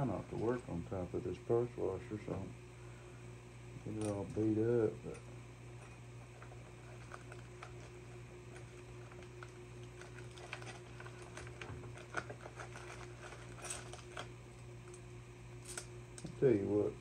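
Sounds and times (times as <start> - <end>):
steady low hum: 0.0 - 17.0
chain links clicking and rattling: 12.2 - 14.2.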